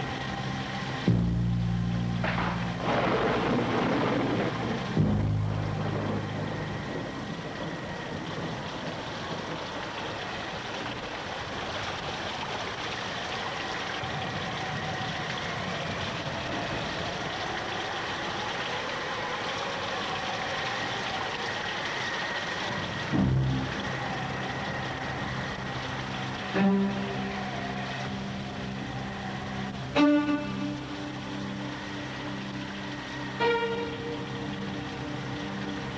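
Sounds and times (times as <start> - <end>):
water rushing: 0.0 - 35.9.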